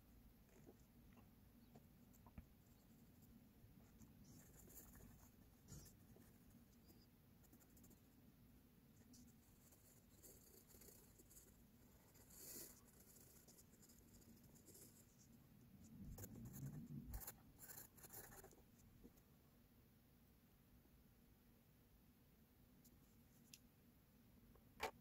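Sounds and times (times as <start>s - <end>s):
pencil scratching on paper: 2.2s - 8.1s, 9.0s - 15.3s, 16.0s - 18.6s.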